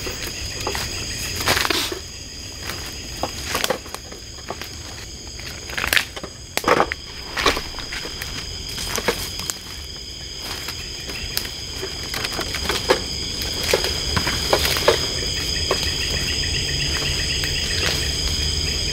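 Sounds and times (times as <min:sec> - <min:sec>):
night insects chorus: 0:00.0 - 0:18.9
footsteps crunching through leaves: 0:06.6 - 0:12.7.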